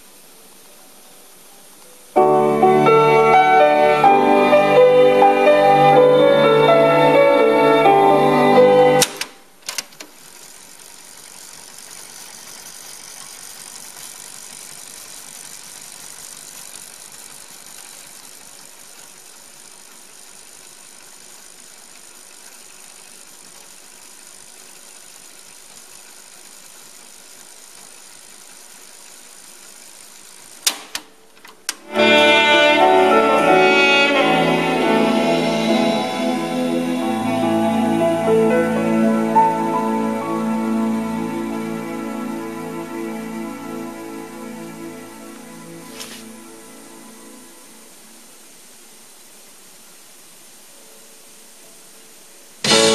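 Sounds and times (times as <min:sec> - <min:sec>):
tape hiss: 0:00.0 - 0:52.9
music from cassette: 0:02.2 - 0:10.2, 0:31.7 - 0:47.8, 0:52.6 - 0:52.9
cassette clicks: 0:09.0 - 0:10.2, 0:30.6 - 0:31.9.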